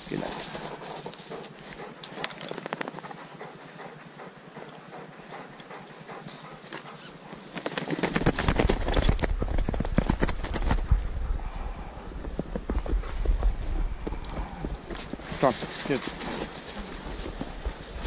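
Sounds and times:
low rumble: 0:09.3 - 0:15.3
footsteps crunching through snow: 0:12.2 - 0:18.0.

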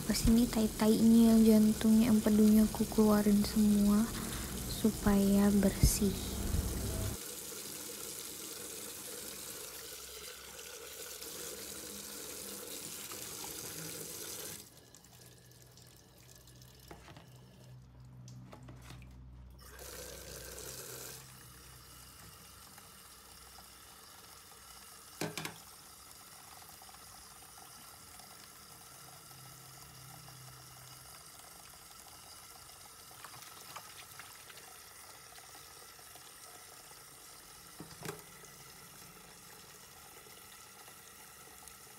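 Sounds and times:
tap water running into sink: 0:00.1 - 0:17.5, 0:19.6 - 0:29.3, 0:30.4 - 0:41.9
fish being rinsed and handled: 0:32.8 - 0:36.4.

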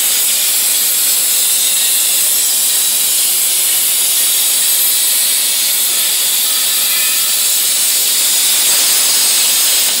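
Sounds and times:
plasma torch hissing: 0:05.2 - 0:10.0.

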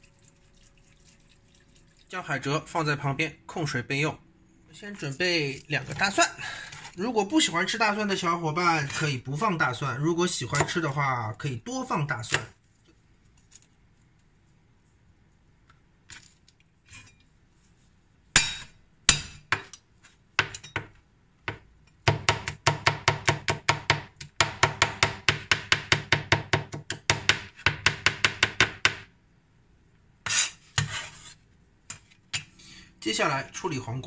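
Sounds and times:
cleaver scraping board: 0:30.2 - 0:32.2.

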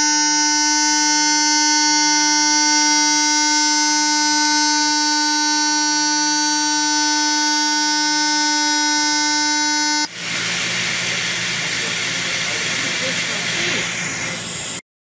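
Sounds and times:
welding arc buzzing: 0:00.0 - 0:14.8
steady hiss: 0:10.1 - 0:14.8.

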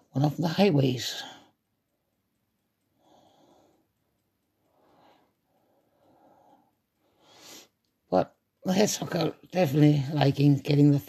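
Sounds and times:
faint soft breaths: 0:02.8 - 0:08.0.

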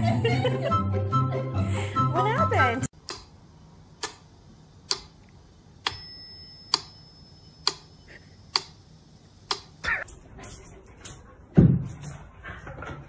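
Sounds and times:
thin bell-like ring: 0:05.9 - 0:07.6.

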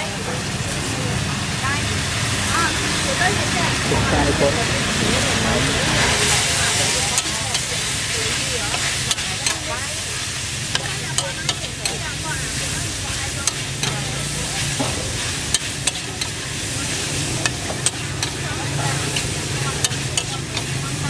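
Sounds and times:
food sizzling: 0:00.0 - 0:21.0
metal spatula scraping a wok: 0:05.2 - 0:20.8.

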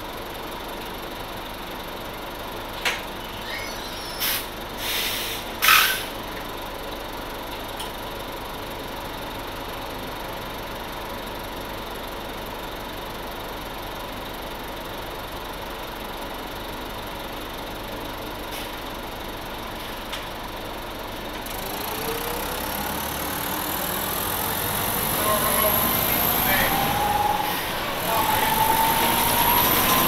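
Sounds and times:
diesel bus engine idling: 0:00.0 - 0:30.0
high whine rising in pitch: 0:21.9 - 0:30.0.

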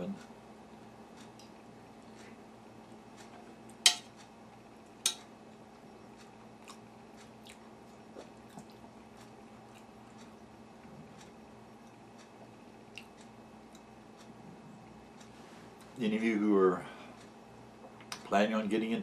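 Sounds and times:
quiet chewing: 0:01.1 - 0:04.6, 0:05.6 - 0:16.0
metal spoon clinking on dish: 0:03.8 - 0:04.1, 0:05.0 - 0:05.2.

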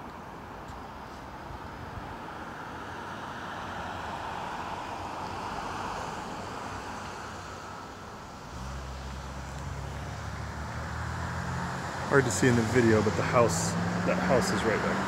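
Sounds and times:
car tyres passing: 0:00.8 - 0:15.0.

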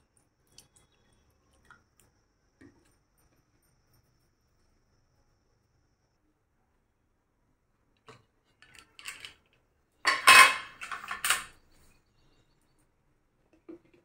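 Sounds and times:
metal clattering: 0:10.1 - 0:11.5
metal lid clicks and scrapes: 0:10.1 - 0:11.5.

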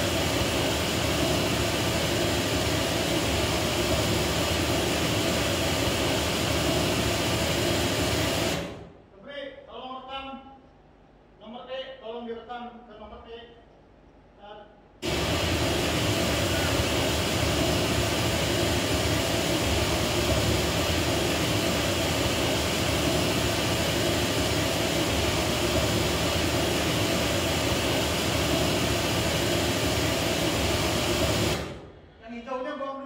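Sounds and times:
loud broadband test noise: 0:00.0 - 0:08.9, 0:15.0 - 0:31.8.

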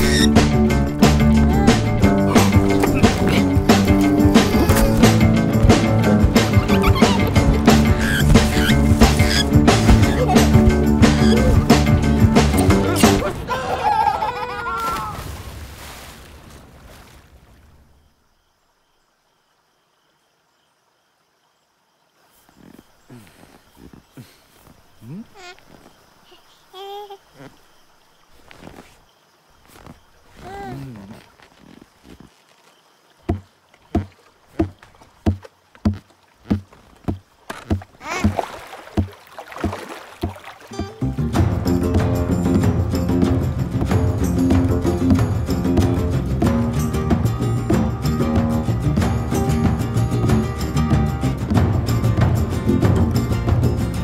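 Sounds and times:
water wash: 0:00.0 - 0:17.9, 0:33.2 - 0:54.0
kayak paddle splashing: 0:00.0 - 0:18.0, 0:27.2 - 0:47.9.

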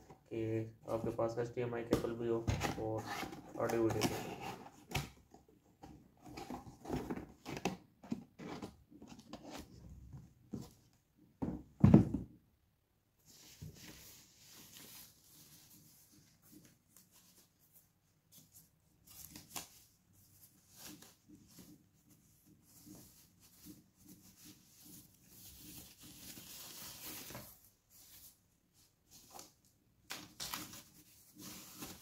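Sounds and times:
packaging rustling and crinkling: 0:24.5 - 0:28.4, 0:30.2 - 0:32.0.

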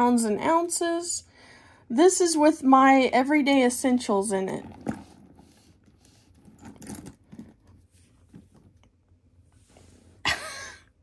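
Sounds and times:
handbag rustling and knocking: 0:04.5 - 0:08.9.

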